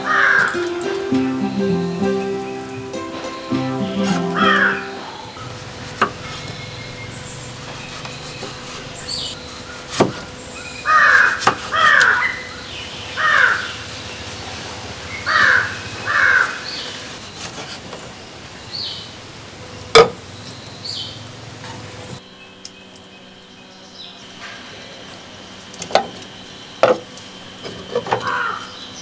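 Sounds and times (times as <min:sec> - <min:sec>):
crow cawing: 0:00.0 - 0:00.6, 0:04.4 - 0:05.5, 0:10.8 - 0:12.5, 0:13.2 - 0:13.8, 0:15.2 - 0:16.8, 0:28.2 - 0:28.8.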